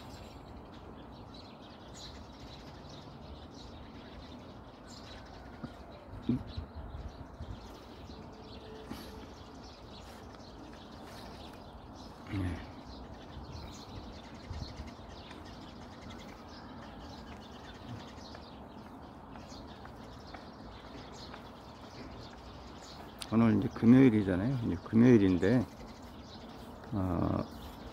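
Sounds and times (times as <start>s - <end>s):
sparrows chirping: 0.0s - 27.9s.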